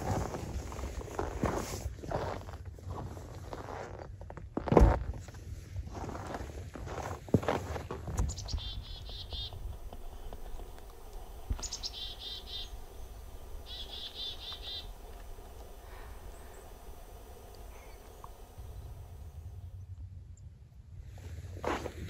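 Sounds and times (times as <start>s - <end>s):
chickadee calling: 8.2s - 19.0s.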